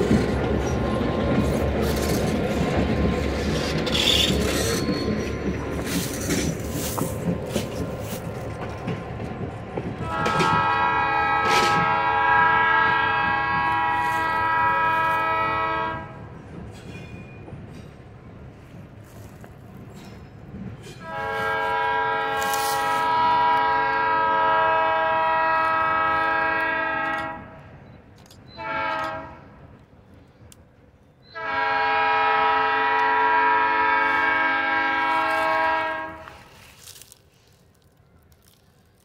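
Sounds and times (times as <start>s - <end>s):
faint train rumble: 0.0s - 39.0s
locomotive air horn blasts: 10.0s - 16.2s, 21.0s - 27.6s, 28.6s - 29.5s, 31.3s - 37.0s.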